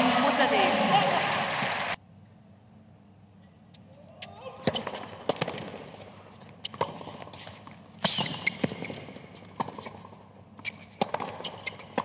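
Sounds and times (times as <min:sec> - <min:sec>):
rackets striking tennis ball: 0:04.6 - 0:12.0
tennis ball bouncing: 0:04.6 - 0:12.0.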